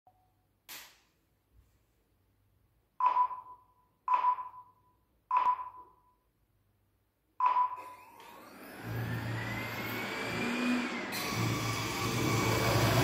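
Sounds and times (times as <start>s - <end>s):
robot vacuum motor: 8.2s - 13.0s.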